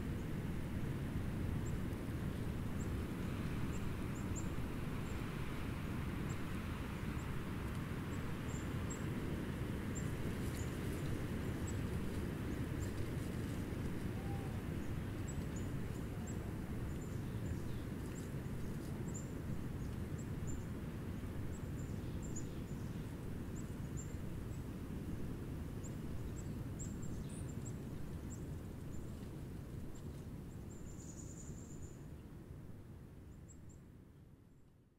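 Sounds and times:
small birds chirping: 14.2 - 20.7.

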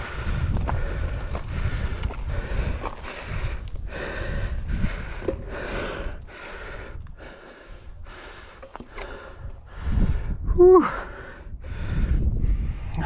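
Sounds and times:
bike rumbling on trail: 0.0 - 13.0
person breathing hard: 0.0 - 13.0
person groaning: 10.5 - 11.0.

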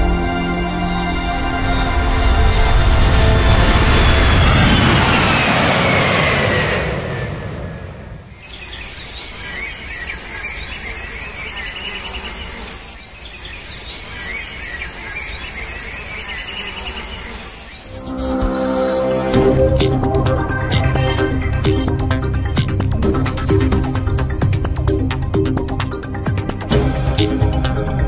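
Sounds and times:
crickets chirping: 8.3 - 19.2
birds calling: 8.3 - 27.9
sound falling in pitch: 17.9 - 21.5.

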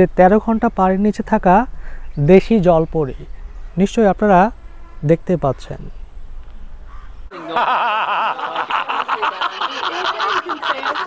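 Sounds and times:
man laughing heartily: 7.3 - 11.0.

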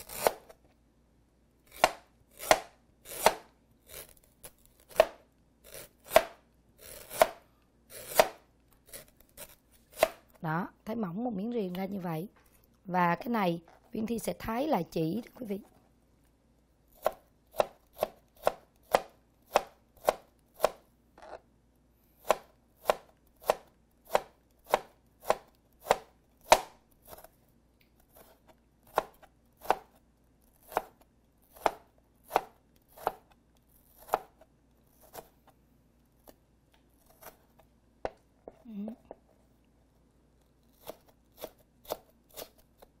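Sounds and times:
knife chopping on plastic board: 1.7 - 3.5, 4.9 - 5.2, 6.0 - 6.4, 7.0 - 7.4, 8.0 - 8.4, 9.9 - 10.2, 17.0 - 20.8, 22.2 - 27.3, 28.9 - 30.0, 30.6 - 33.3, 34.0 - 35.4.

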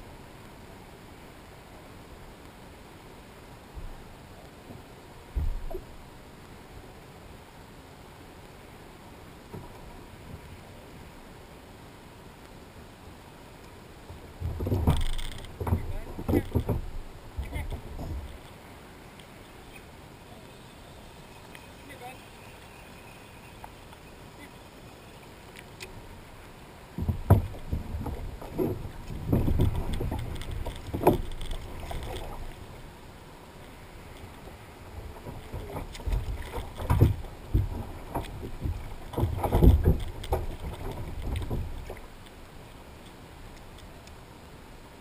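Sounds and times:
thumps against plastic kayak: 14.4 - 18.3, 27.0 - 31.6.

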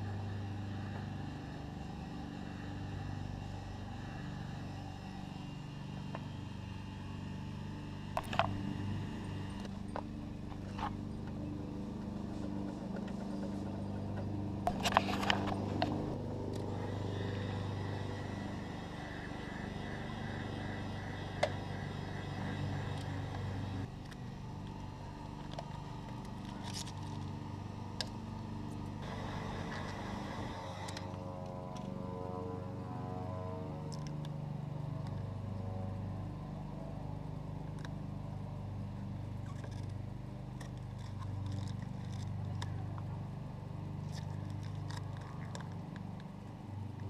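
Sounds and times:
heat gun humming: 7.3 - 31.6
sharp clicks and scraping: 8.1 - 17.3, 18.4 - 27.4, 40.6 - 43.2, 44.0 - 46.4.

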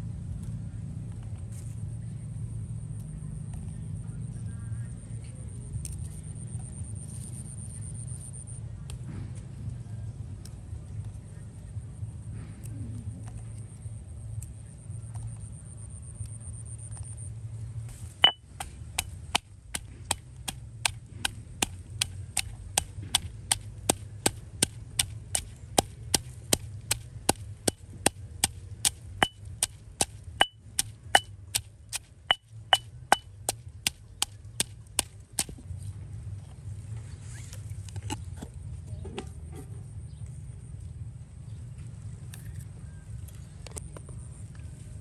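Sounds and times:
stone pestle pounding in mortar: 18.2 - 35.5.

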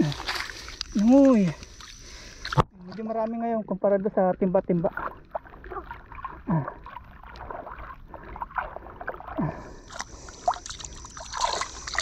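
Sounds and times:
water sloshing and gurgling: 0.0 - 12.0
fish splashing: 4.7 - 12.0.

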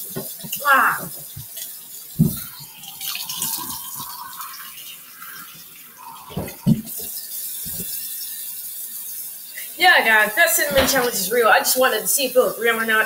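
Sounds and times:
tap running with water splashing: 0.0 - 13.0
person rinsing mouth: 0.6 - 8.5.

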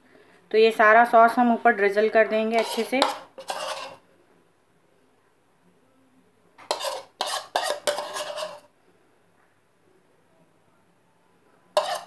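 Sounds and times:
spoon scraping a bowl: 2.5 - 4.0, 6.6 - 8.7, 11.8 - 12.0.

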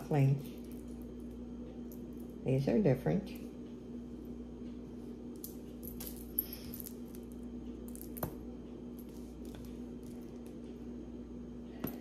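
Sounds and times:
jewelry rustling and ticking: 0.0 - 11.0
steady low hum: 0.0 - 12.0.

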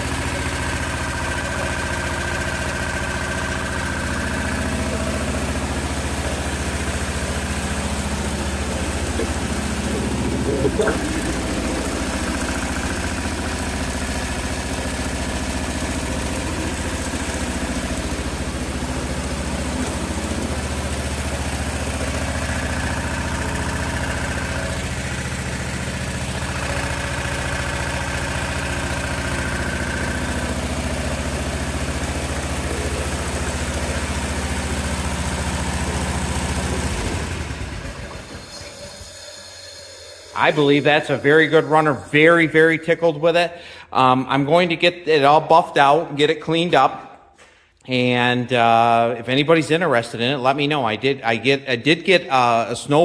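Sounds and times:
tractor engine idling: 0.0 - 43.8.

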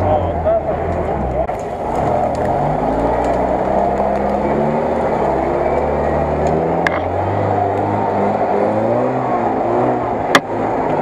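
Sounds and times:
off-road vehicle engine: 0.0 - 11.0
sharp crack: 1.5 - 7.9.

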